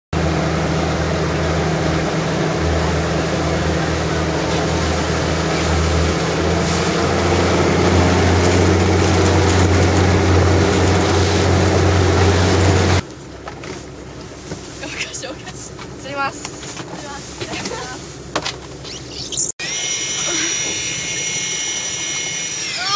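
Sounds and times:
boat engine droning: 0:00.1 - 0:22.9
water rushing: 0:00.2 - 0:13.0.

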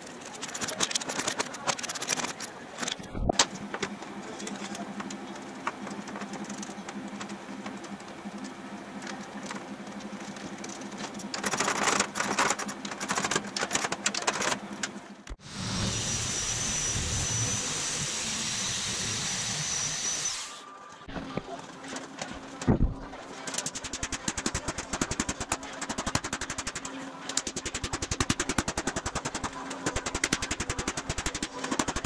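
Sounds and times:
metal sheet rattling and clicking: 0:00.0 - 0:03.8, 0:10.2 - 0:14.6, 0:22.2 - 0:32.0
steady hum: 0:01.1 - 0:13.6, 0:14.4 - 0:32.0
power shear cutting metal: 0:15.4 - 0:20.6.

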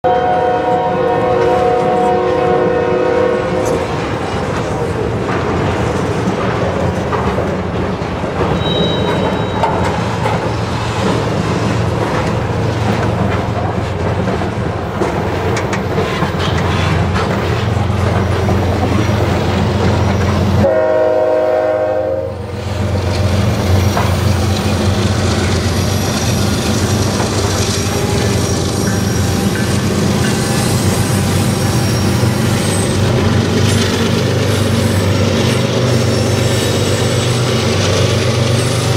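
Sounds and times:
train air horn chord: 0:00.0 - 0:03.8, 0:20.6 - 0:22.4
freight cars rumbling: 0:01.7 - 0:20.7, 0:22.3 - 0:38.9
wheels clacking over rail joints: 0:03.6 - 0:20.7, 0:22.4 - 0:38.9.

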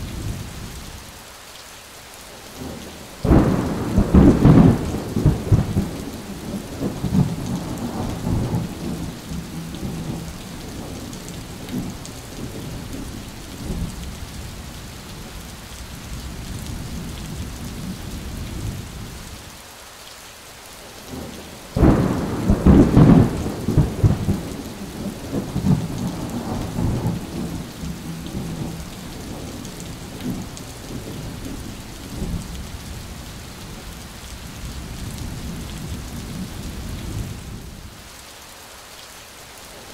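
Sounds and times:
heavy rain: 0:00.0 - 0:39.9
loud thunderclap: 0:03.2 - 0:11.0, 0:21.8 - 0:31.6
thunder rumbling: 0:03.2 - 0:14.0, 0:21.8 - 0:33.1.

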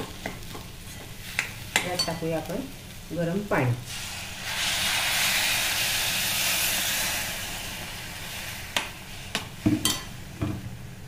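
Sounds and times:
water hissing in hot oil: 0:00.0 - 0:11.0
spoon tapping metal pan: 0:08.8 - 0:10.6.

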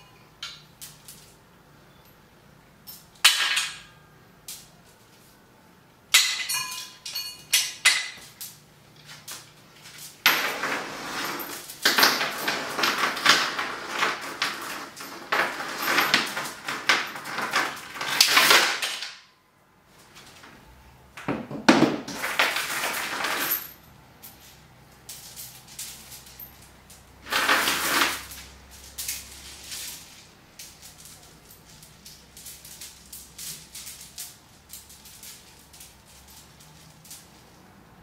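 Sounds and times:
chain links clinking and rattling: 0:00.0 - 0:05.0, 0:06.1 - 0:19.1, 0:22.1 - 0:37.8.

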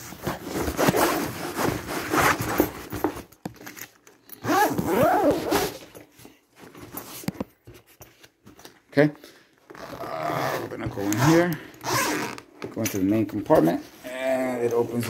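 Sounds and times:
bag zipper being pulled: 0:04.4 - 0:05.9, 0:09.7 - 0:12.5.

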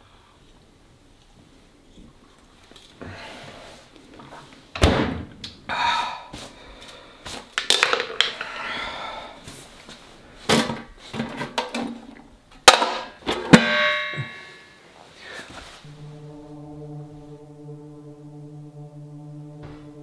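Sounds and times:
metal pedal bin clank: 0:12.7 - 0:14.5.

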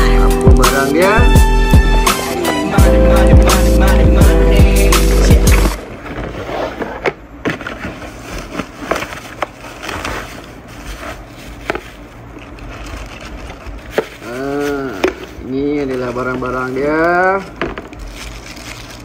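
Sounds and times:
background music: 0:00.0 - 0:05.8
cardboard packaging handled: 0:05.4 - 0:19.0.

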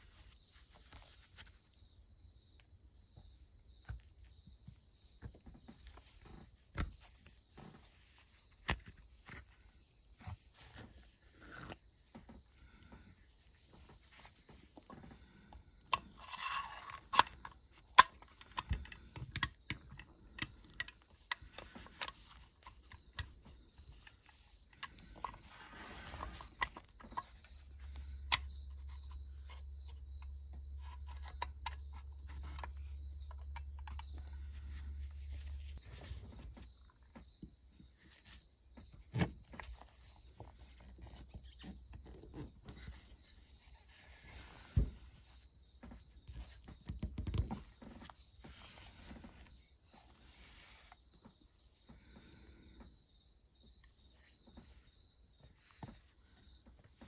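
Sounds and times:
toy parts clicking and tapping: 0:15.9 - 0:25.6.

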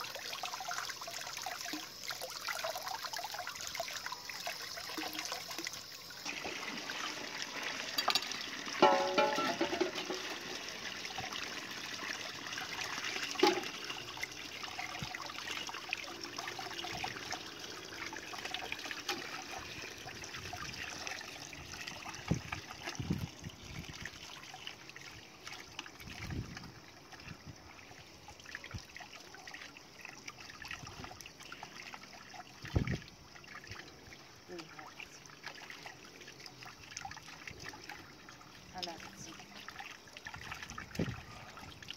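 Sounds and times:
meat rinsed by hand: 0:01.4 - 0:24.1
tap water splashing into pot: 0:04.9 - 0:15.8, 0:18.2 - 0:24.0.

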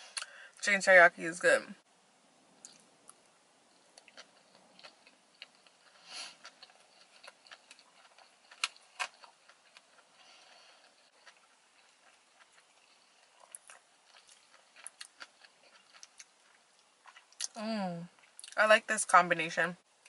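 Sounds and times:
close-up chewing: 0:02.6 - 0:17.6.

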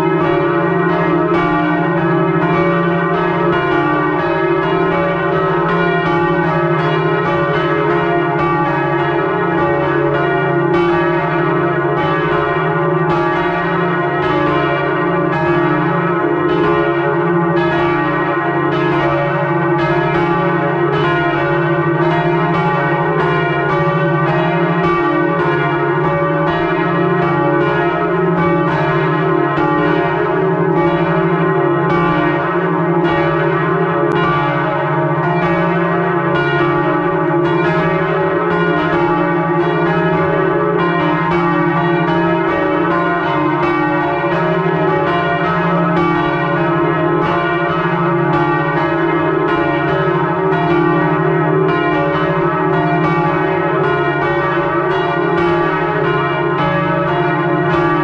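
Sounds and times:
church bells ringing: 0:00.0 - 0:58.0.

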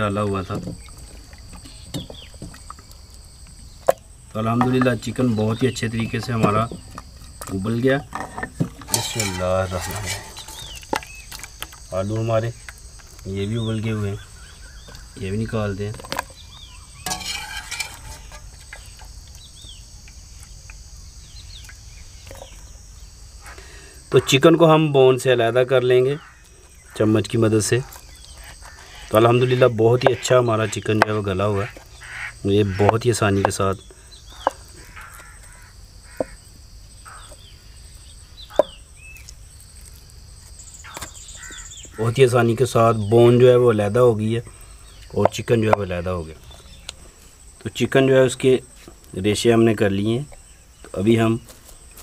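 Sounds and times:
high insect buzz: 0:00.0 - 0:45.6
birds chirping: 0:00.0 - 0:52.0
handling noise: 0:04.4 - 0:11.9, 0:15.7 - 0:19.8.

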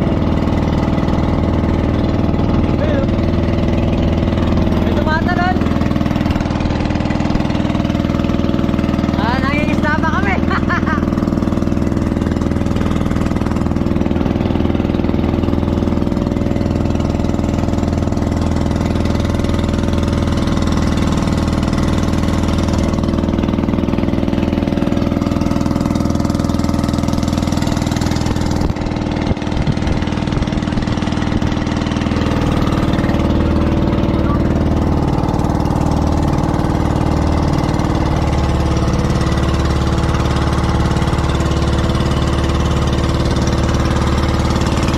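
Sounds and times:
boat engine droning: 0:00.0 - 0:44.9.

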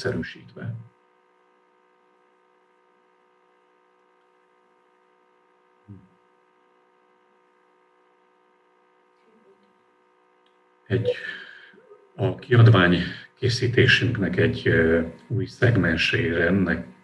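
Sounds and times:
faint electrical hum: 0:00.0 - 0:17.0.

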